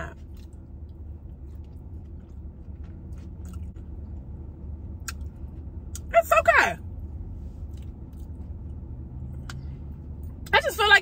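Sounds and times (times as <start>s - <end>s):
steady low hum: 0.0s - 11.0s
person chewing food: 0.2s - 6.1s, 7.6s - 9.7s.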